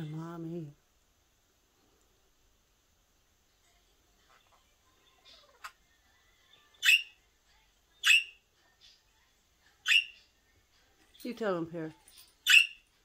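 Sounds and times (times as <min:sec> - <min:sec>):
budgerigar soft chattering: 0:06.8 - 0:07.1, 0:08.0 - 0:08.3, 0:09.8 - 0:10.3, 0:12.4 - 0:12.8
budgerigar chirping: 0:06.8 - 0:07.2, 0:08.0 - 0:08.4, 0:09.8 - 0:10.3, 0:12.4 - 0:12.8.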